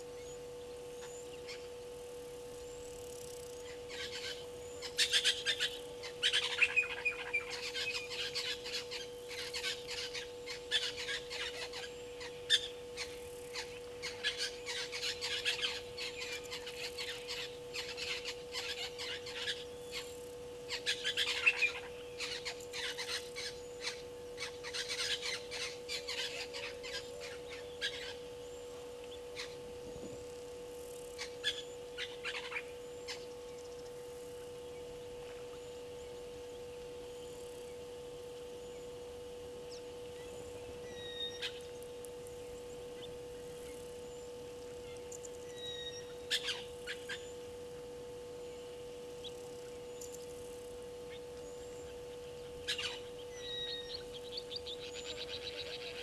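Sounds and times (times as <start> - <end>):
steady humming tone: 0.0 - 56.0.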